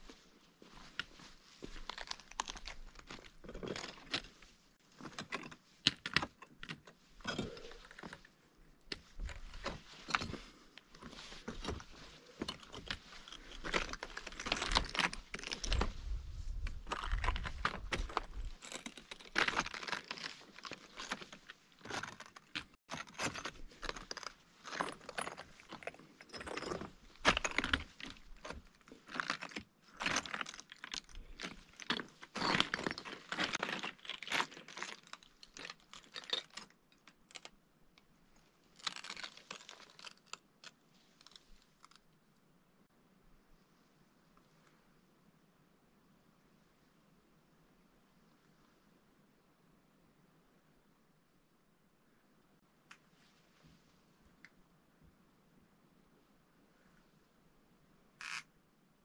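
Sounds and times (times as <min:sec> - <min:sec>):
footsteps crunching on rock rubble: 0:09.0 - 0:36.6.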